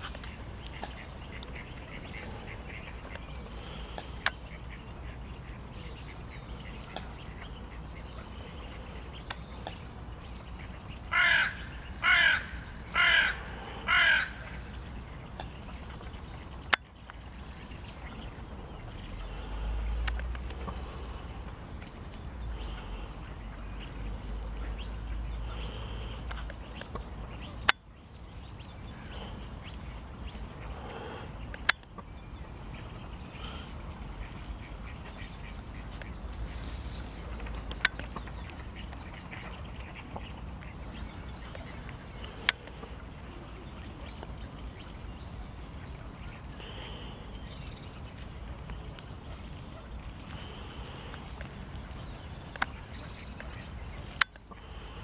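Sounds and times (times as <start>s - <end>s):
crow cawing: 11.1s - 14.6s
faint clicks: 19.8s - 22.2s, 48.5s - 54.6s.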